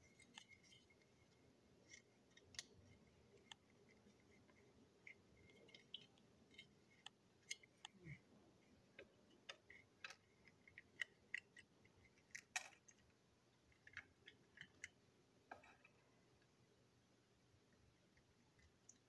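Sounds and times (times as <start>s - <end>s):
plastic parts clicking and tapping: 8.9s - 13.1s.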